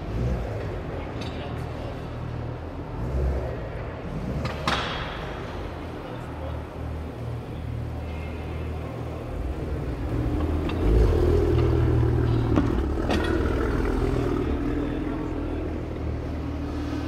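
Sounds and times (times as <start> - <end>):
car engine running: 6.3 - 17.0.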